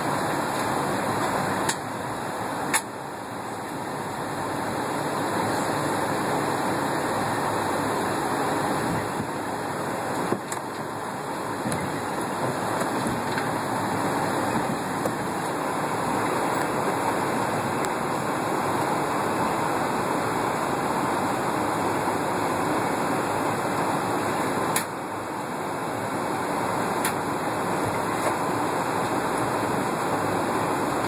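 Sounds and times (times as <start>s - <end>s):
aircraft cabin noise: 0.0s - 31.0s.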